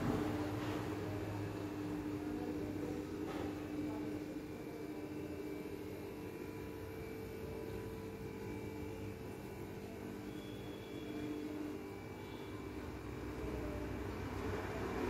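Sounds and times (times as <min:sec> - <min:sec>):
steady hum: 0:00.0 - 0:15.0
faint steady tones: 0:04.1 - 0:15.0.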